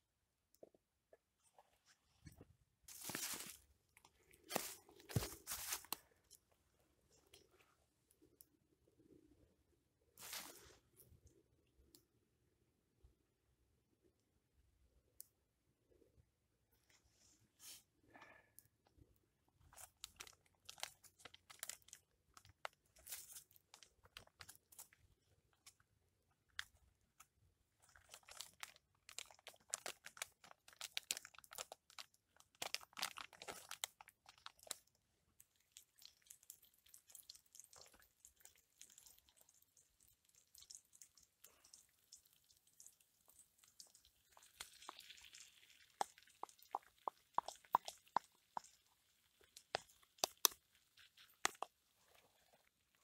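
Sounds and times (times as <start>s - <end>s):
shallot crackling in oil: 35.8s - 52.2s.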